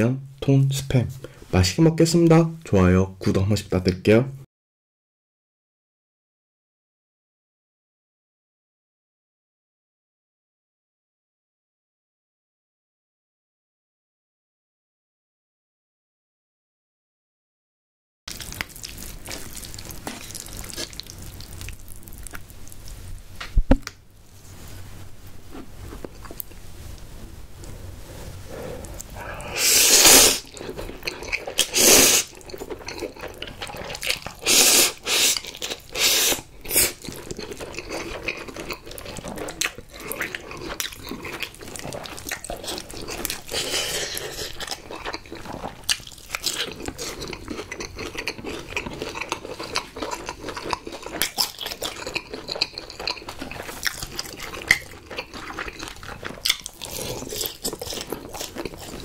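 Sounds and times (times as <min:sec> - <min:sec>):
chewing: 0:18.3 - 0:23.0, 0:28.4 - 0:59.0
noodle slurping: 0:28.0 - 0:45.8.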